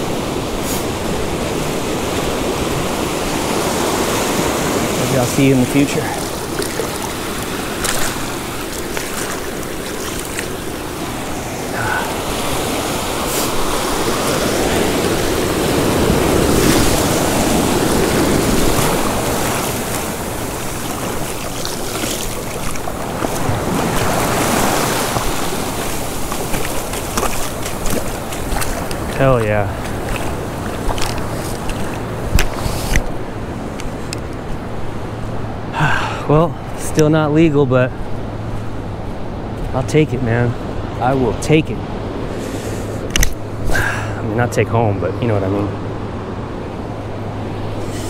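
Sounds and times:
ocean surf washing: 0.0s - 48.0s
wind noise on microphone: 23.0s - 35.2s.

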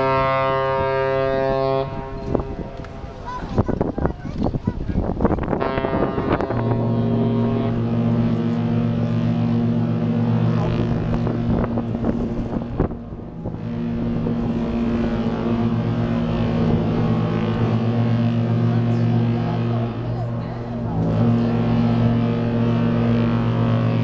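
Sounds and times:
ship engines humming: 0.0s - 24.0s
wind rumbling on microphone: 0.0s - 24.0s.

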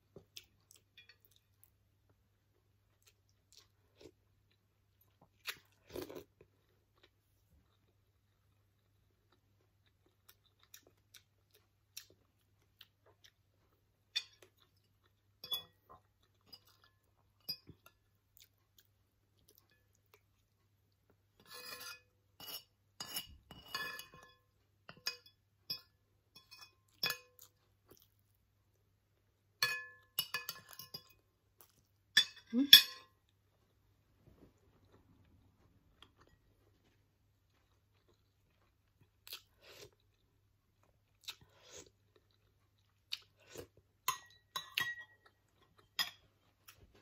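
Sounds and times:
chewing: 2.9s - 21.2s, 34.5s - 47.0s
cutlery clinking on a plate: 21.4s - 27.4s, 29.6s - 31.2s, 32.2s - 33.2s, 44.1s - 45.2s, 46.0s - 46.2s.

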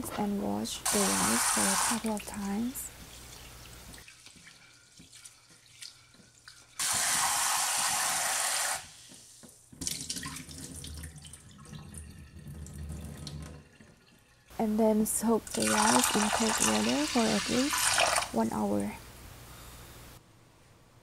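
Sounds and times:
water gurgling and splashing: 15.5s - 18.4s.

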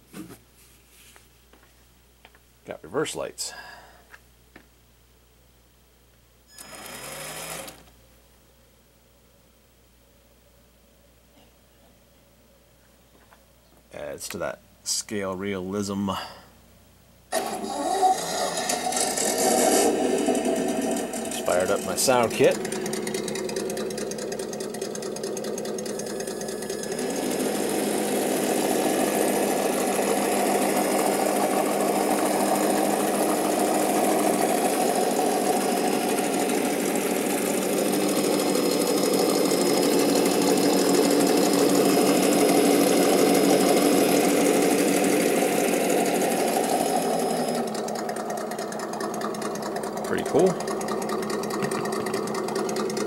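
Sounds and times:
simulated engine through small speaker: 17.4s - 53.0s.

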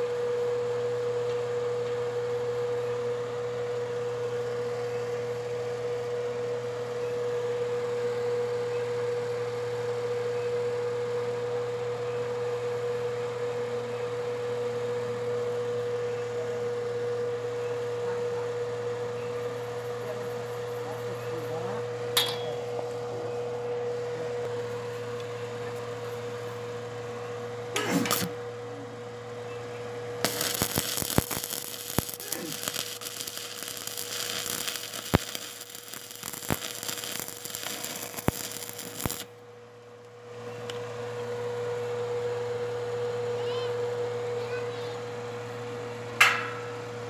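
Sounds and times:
steady hum: 19.2s - 40.1s
welding arc crackling and hissing: 27.9s - 28.4s, 30.2s - 39.3s.

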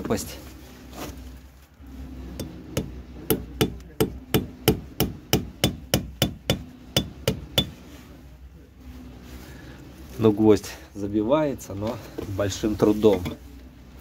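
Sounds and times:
hammer striking nail: 2.4s - 7.8s.

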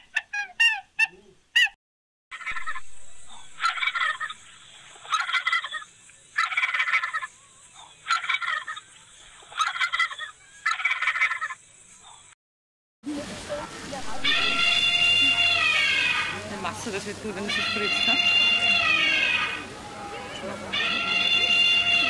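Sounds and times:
turkey gobbling: 0.0s - 1.8s, 2.4s - 11.6s, 14.2s - 16.4s, 17.5s - 19.7s, 20.7s - 22.0s.

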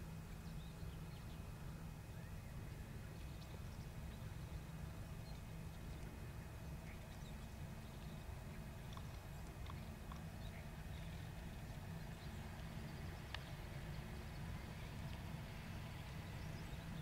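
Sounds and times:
distant harvester droning: 0.0s - 17.0s
faint ticks: 5.2s - 6.2s, 6.8s - 15.3s.

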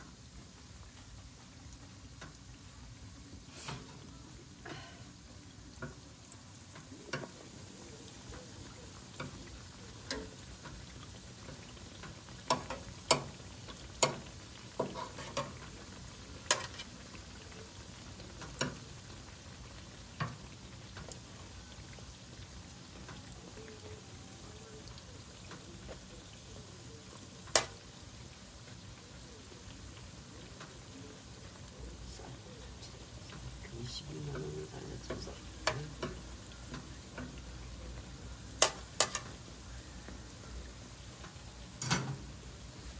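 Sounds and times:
food sizzling in deep fryer: 0.0s - 42.9s
metal tongs clicking on fryer: 5.7s - 7.4s, 9.1s - 15.7s, 16.4s - 17.0s, 18.3s - 18.8s, 27.5s - 27.8s, 35.1s - 37.4s, 38.6s - 39.4s, 41.8s - 42.3s.

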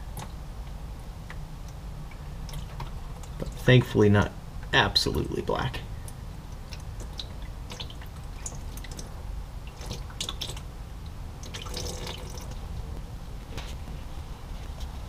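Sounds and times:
low background rumble: 0.0s - 15.0s
fluid dripping and splashing: 2.1s - 3.6s, 6.1s - 12.6s.

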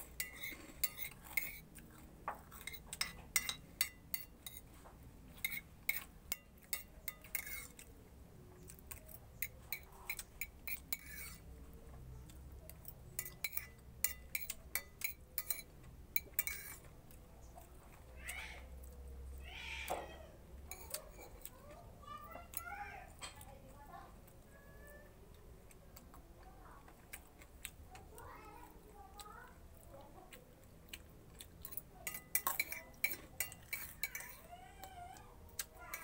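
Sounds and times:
spoon clinking on plate: 0.2s - 1.6s, 2.5s - 4.7s, 5.4s - 7.9s, 13.2s - 16.8s, 32.0s - 34.5s.

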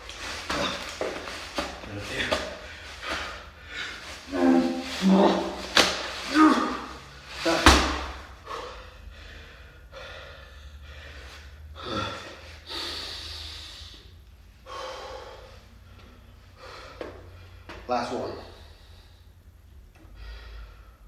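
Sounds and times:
man breathing hard: 0.1s - 21.0s
sandbag thud on floor: 7.5s - 8.2s.

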